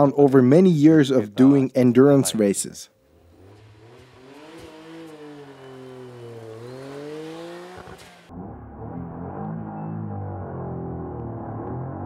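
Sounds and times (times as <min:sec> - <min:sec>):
car engine running: 0:03.0 - 0:12.0.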